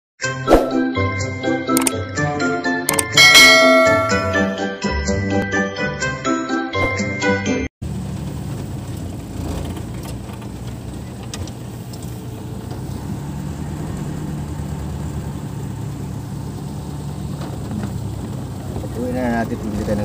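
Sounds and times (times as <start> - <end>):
van engine humming: 2.2 - 5.4, 7.8 - 20.0.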